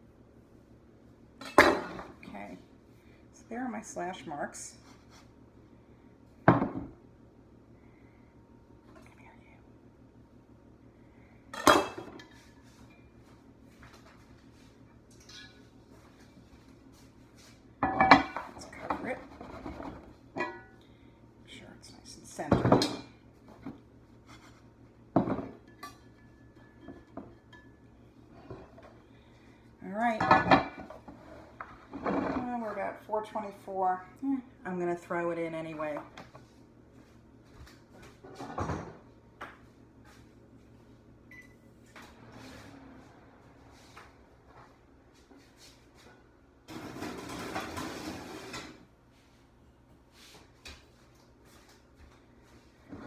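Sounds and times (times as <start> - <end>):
pots knocking and clunking: 17.8 - 20.8, 25.1 - 29.0, 38.2 - 39.1, 46.7 - 48.8.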